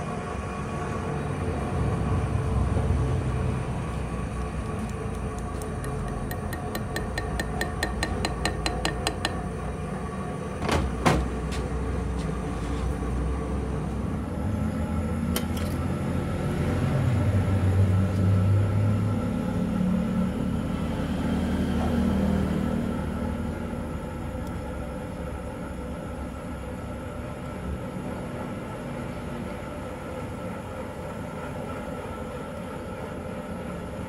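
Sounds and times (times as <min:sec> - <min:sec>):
low hum and rumble: 0:00.0 - 0:34.0
quick light metal taps: 0:04.8 - 0:09.4
sharp knocks: 0:05.7 - 0:09.4.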